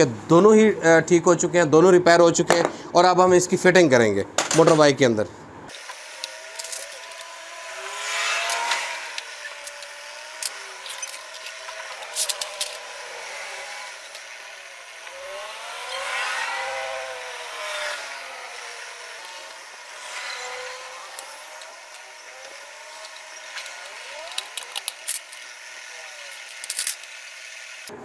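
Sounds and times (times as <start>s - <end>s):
motor vehicles passing: 5.5s - 27.2s
sharp metal clicks: 8.2s - 12.9s, 20.3s - 25.6s.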